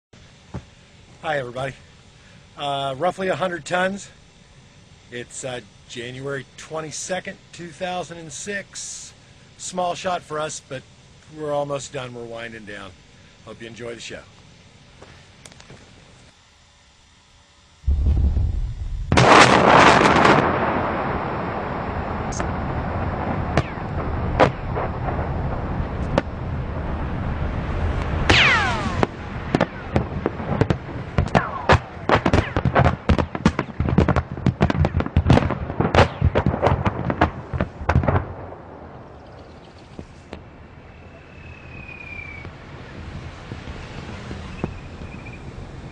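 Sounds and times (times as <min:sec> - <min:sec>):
sharp cracks and pops: 0:15.4 - 0:15.8, 0:23.5 - 0:25.2, 0:28.0 - 0:38.4
low rumble: 0:17.8 - 0:34.0
massive explosion blast: 0:17.9 - 0:39.1
falling whistles: 0:28.3 - 0:29.8, 0:40.8 - 0:42.5, 0:44.4 - 0:45.5.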